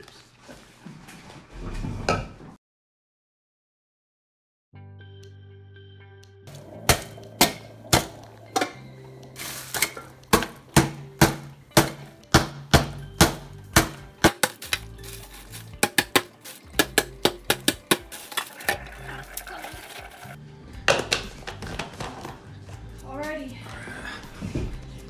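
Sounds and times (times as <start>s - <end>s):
background music: 4.8s - 25.0s
spoon whacking bag of ice: 13.0s - 20.4s.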